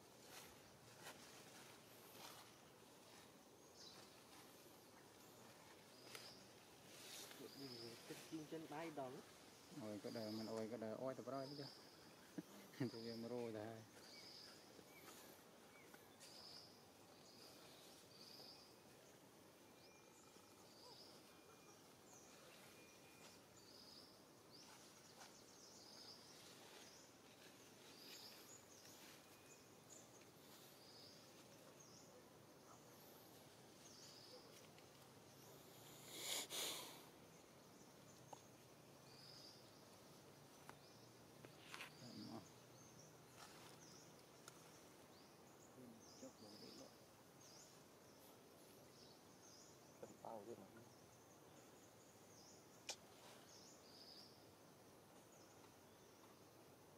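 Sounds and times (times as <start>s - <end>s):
faint high chirp: 19.6s - 33.0s.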